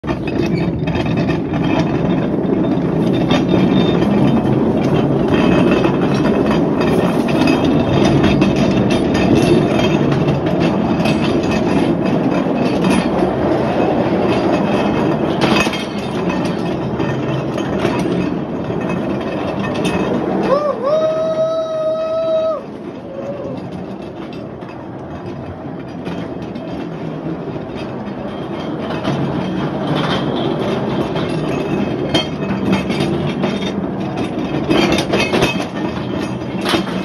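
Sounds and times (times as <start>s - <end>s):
rail car wheels rumbling on track: 0.0s - 37.0s.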